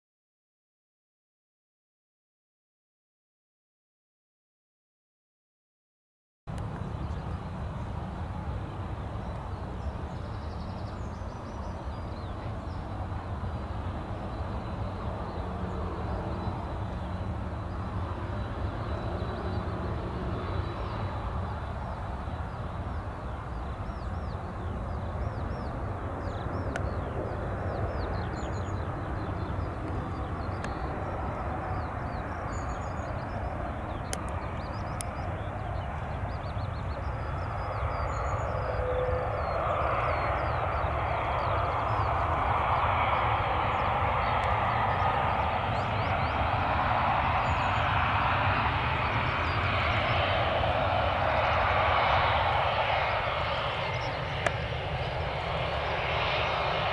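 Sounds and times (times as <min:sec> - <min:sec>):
jet engine rumble: 0:06.5 - 0:56.9
small birds chirping: 0:09.1 - 0:56.9.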